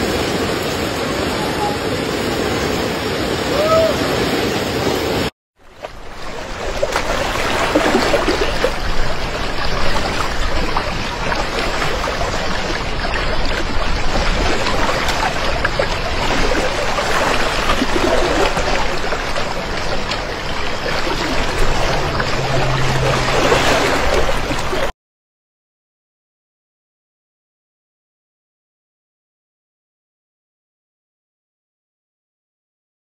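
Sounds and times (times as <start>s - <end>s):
floodwater rushing: 0.0s - 24.9s.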